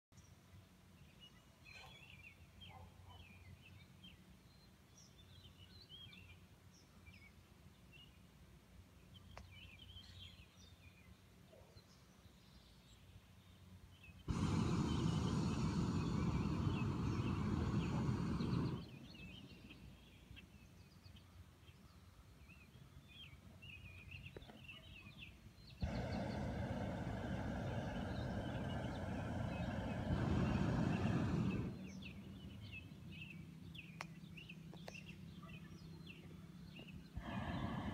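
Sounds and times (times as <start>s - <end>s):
birds singing: 0.2s - 8.3s, 9.0s - 37.9s
propane burner blasts: 14.3s - 19.8s, 25.8s - 33.3s, 37.1s - 37.9s.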